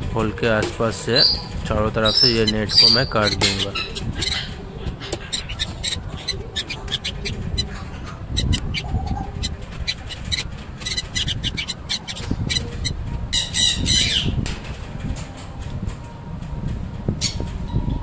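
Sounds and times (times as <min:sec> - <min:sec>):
parrots chirping and squawking: 0:01.2 - 0:14.4.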